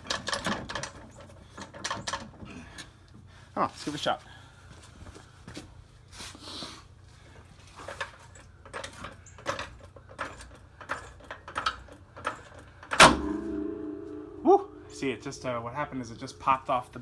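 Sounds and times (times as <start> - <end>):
light metallic clicks and knocks: 7.9 - 13.1.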